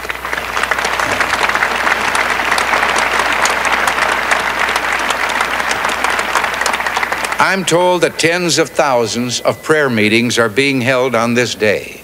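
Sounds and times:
crowd applauding: 0:00.0 - 0:09.0.

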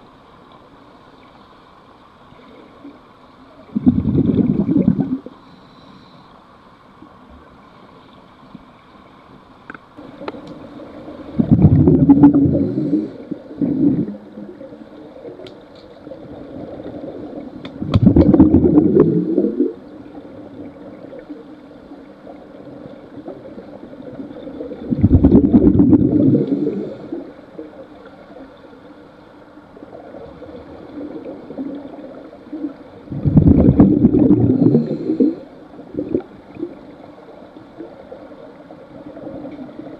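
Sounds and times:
faint steady hiss: 0:00.0 - 0:39.9
underwater regulator bubbles: 0:03.6 - 0:05.4, 0:11.2 - 0:15.5, 0:16.2 - 0:21.2, 0:22.6 - 0:27.8, 0:29.9 - 0:36.9.

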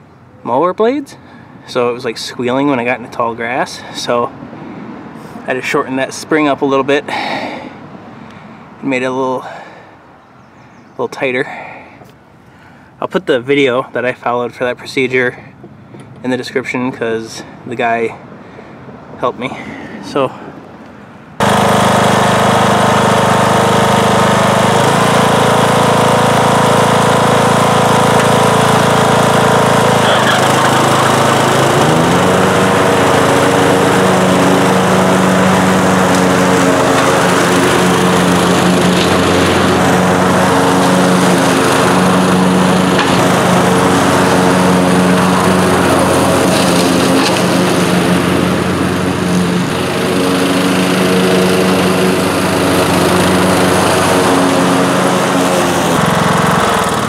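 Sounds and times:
riding mower engine running: 0:21.4 - 0:57.0.

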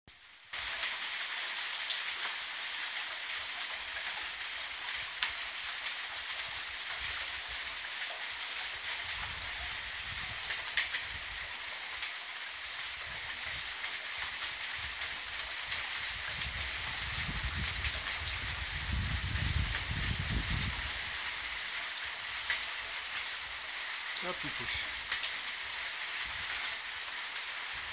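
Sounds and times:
light rain hissing: 0:00.1 - 0:27.9
raindrops ticking: 0:21.7 - 0:27.5.

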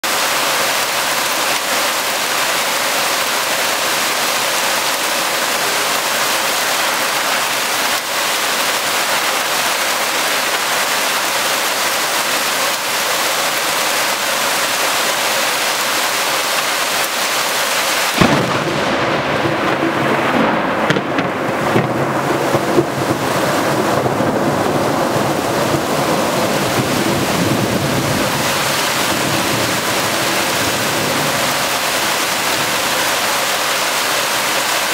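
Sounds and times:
heavy rain on pavement: 0:00.0 - 0:34.9
thunder rumbling and cracking: 0:18.1 - 0:33.0.

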